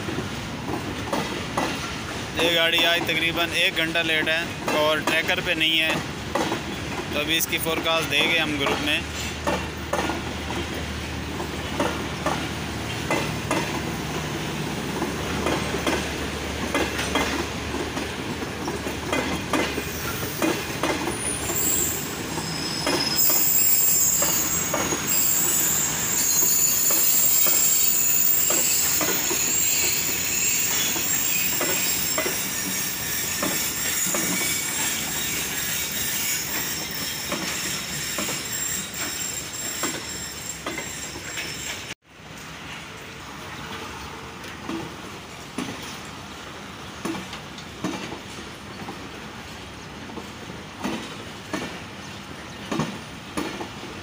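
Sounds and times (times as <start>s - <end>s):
train wheels clicking over rail joints: 0.0s - 42.0s, 47.0s - 49.2s, 50.0s - 51.9s, 52.5s - 54.0s
high metallic wheel squeal: 19.9s - 42.0s.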